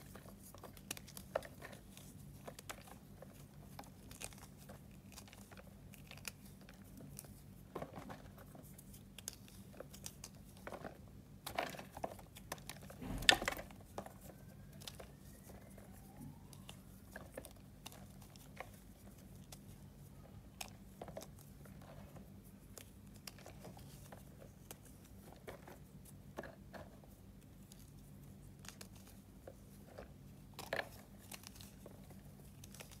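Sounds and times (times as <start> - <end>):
fingers crushing dry chalk: 0.0 - 10.7.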